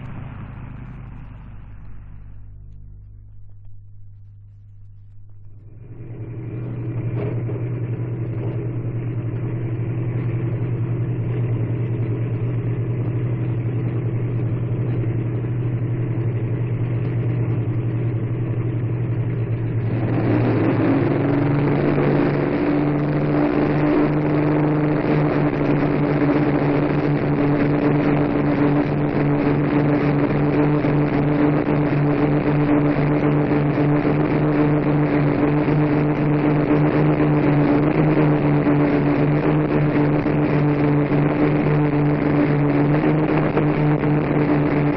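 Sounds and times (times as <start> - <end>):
propeller aircraft engines droning: 0.0 - 44.9.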